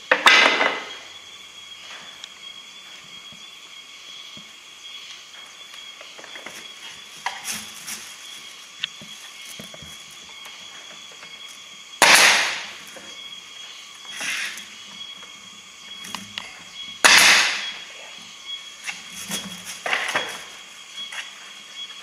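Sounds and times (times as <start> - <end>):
nail gun firing: 12.0 - 12.6, 17.0 - 17.7.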